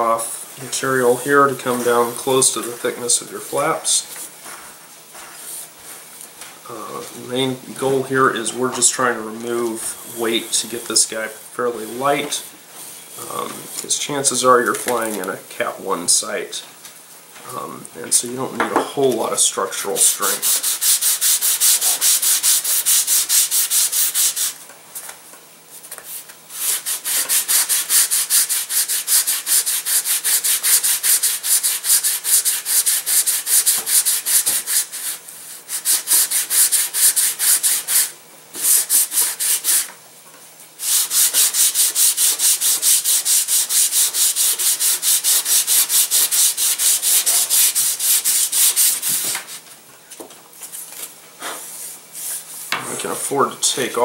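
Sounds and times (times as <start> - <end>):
sandpaper rubbing wood: 0.8 - 4.3, 19.0 - 24.6, 26.0 - 39.9, 40.8 - 49.6.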